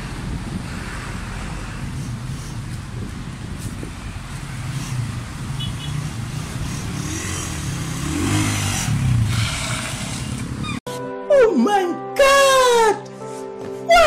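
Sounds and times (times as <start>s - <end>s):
motorcycle engine revving: 0.0s - 10.8s
street traffic: 0.0s - 10.9s.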